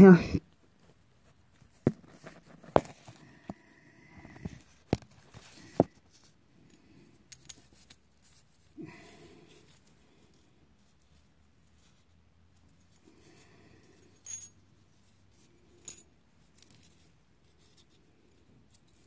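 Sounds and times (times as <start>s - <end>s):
hand tools clinking and knocking: 4.3s - 10.4s, 12.8s - 14.7s, 15.7s - 17.1s.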